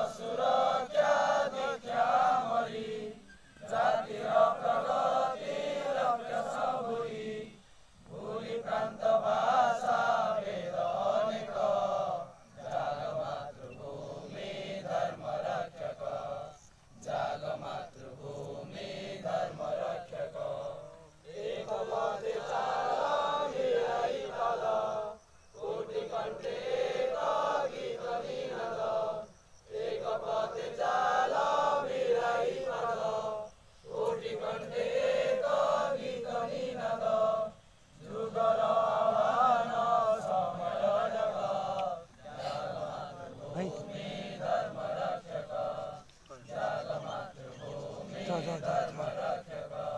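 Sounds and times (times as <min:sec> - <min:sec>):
group of men singing: 0:00.0 - 0:49.9.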